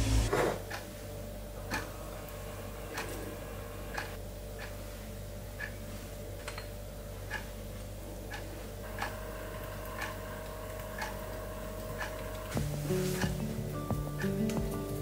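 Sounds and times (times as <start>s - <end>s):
clock ticking: 11.0s - 11.2s.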